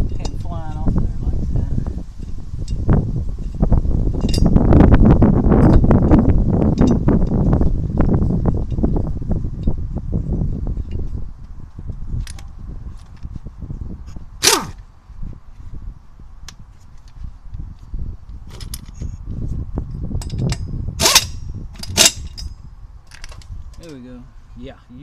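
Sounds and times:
air impact wrench hammering: 20.2 - 22.4.

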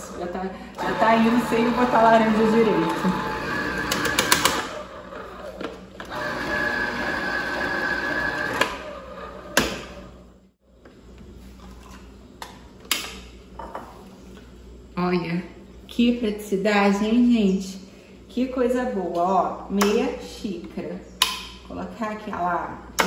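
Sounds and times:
electric juicer whirring: 0.0 - 10.3.

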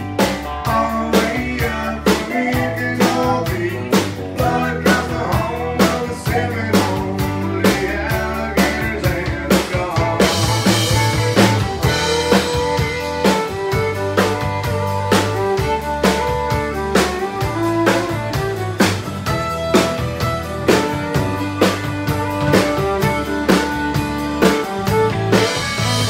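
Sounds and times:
country band playing: 0.0 - 26.0
drum kit beat: 0.0 - 26.0.

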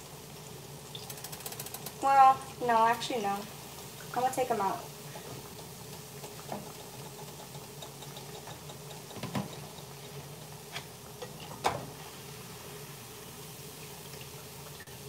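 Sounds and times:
oil bubbling and crackling: 0.0 - 15.0.

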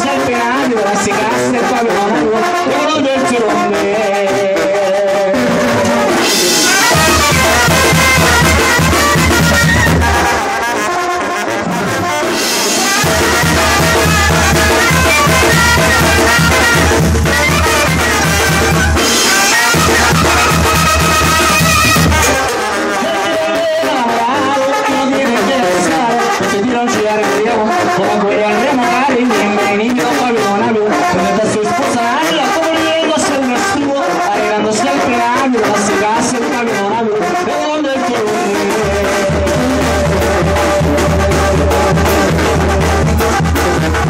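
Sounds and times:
sousaphone bass: 0.0 - 44.0
trombone: 0.0 - 44.0
clarinet: 0.8 - 36.0
drums and cymbals: 5.2 - 27.9, 38.3 - 44.0.

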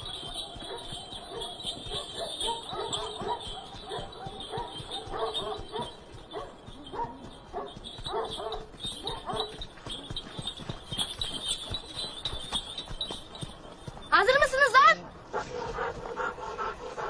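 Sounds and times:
dogs barking and yelping: 0.0 - 9.6, 15.2 - 17.0.

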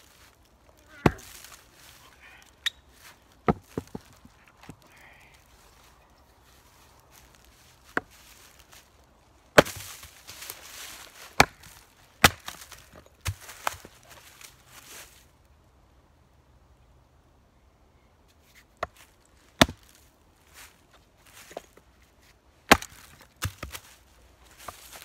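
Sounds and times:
rustling: 0.0 - 15.3, 18.4 - 25.0
hatchet chopping wood: 1.0 - 1.4, 3.4 - 4.1, 9.6 - 10.0, 11.4 - 13.5, 19.6 - 19.9, 22.7 - 23.8.

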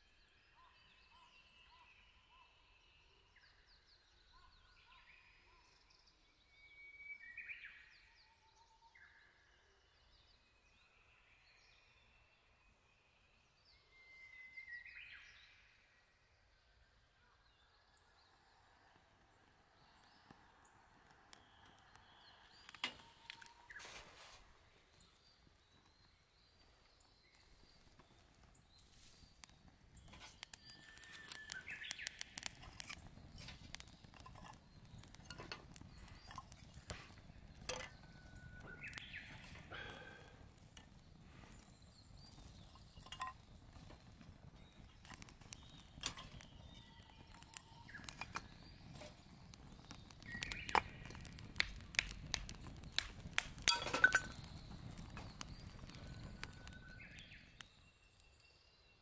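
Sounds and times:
campfire crackling and popping: 18.4 - 58.6.

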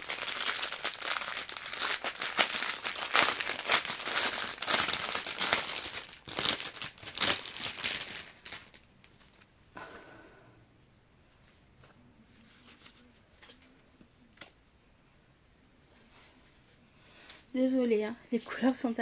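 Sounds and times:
packet crinkling: 0.0 - 9.4.

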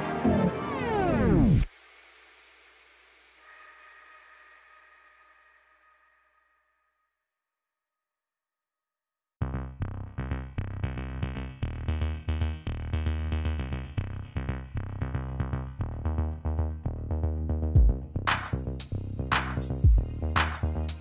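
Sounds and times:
electronic music with heavy bass: 0.0 - 1.7, 9.4 - 21.0.

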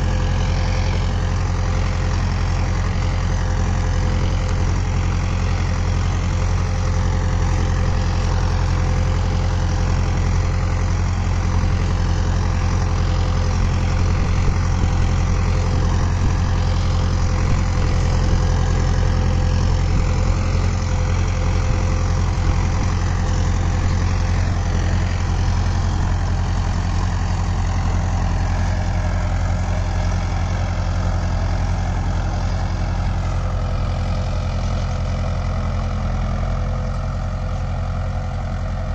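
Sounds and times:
tractor diesel engine running: 0.0 - 38.9.

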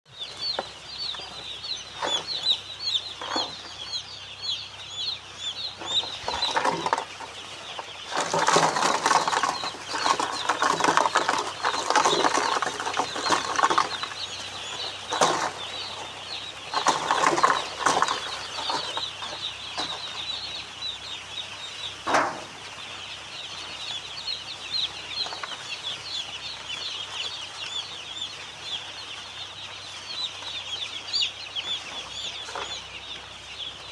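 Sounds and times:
chicks peeping: 0.1 - 33.9
rustling noise: 5.8 - 20.2
sharp knocks: 22.0 - 22.5.

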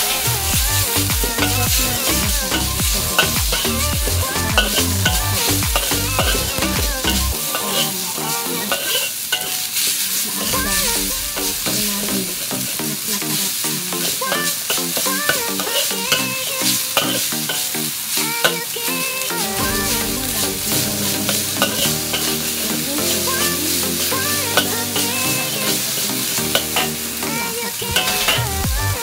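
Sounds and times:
background music: 0.0 - 29.0
meat sizzling in a wok: 0.0 - 29.0.

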